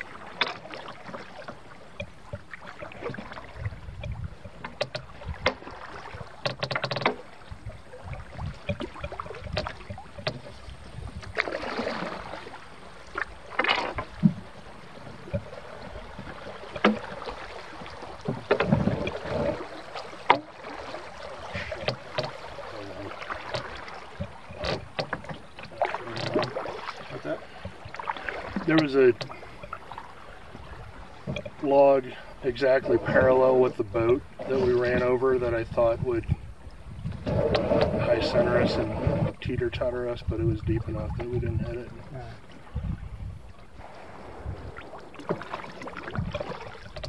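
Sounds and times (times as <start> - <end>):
paddle splashing in water: 0.0 - 47.0
knocks on canoe: 2.0 - 7.3, 8.4 - 10.6, 16.1 - 20.8, 21.4 - 29.8, 30.6 - 31.6.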